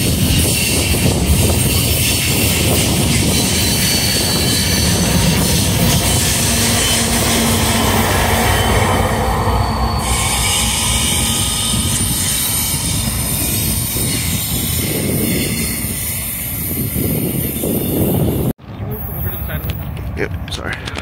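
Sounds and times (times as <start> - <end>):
train wheels squealing on rail: 0.0 - 19.9
freight train rumbling past: 0.0 - 21.0.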